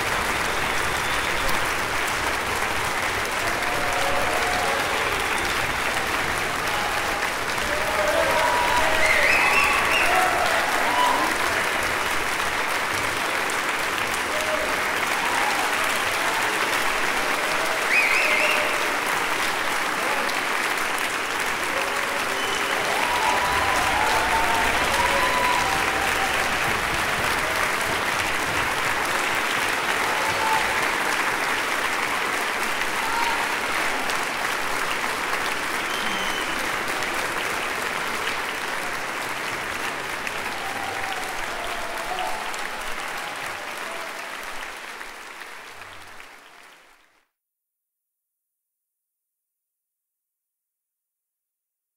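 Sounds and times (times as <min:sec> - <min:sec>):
audience applauding: 0:00.0 - 0:47.2
shouted cheers: 0:02.9 - 0:13.4, 0:14.0 - 0:20.6, 0:21.4 - 0:34.5, 0:35.5 - 0:37.6, 0:38.2 - 0:44.9.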